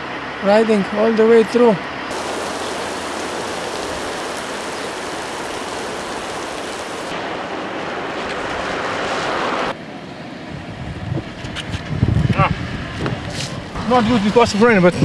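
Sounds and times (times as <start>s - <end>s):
rain hissing: 2.1s - 7.2s.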